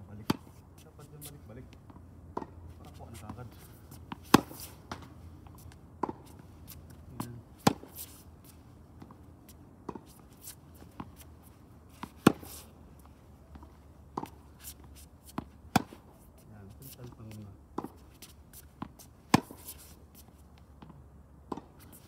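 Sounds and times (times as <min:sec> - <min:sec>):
tennis ball bouncing on court: 0:00.2 - 0:00.6, 0:01.2 - 0:22.0
tennis ball hitting strings: 0:02.3 - 0:02.6, 0:04.1 - 0:05.1, 0:06.0 - 0:06.4, 0:07.6 - 0:08.0, 0:09.8 - 0:10.2, 0:15.3 - 0:16.0, 0:18.8 - 0:19.7, 0:21.5 - 0:21.8.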